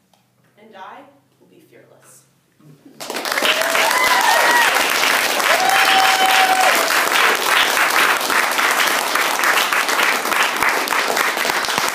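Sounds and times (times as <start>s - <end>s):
audience applauding: 3.0s - 11.9s.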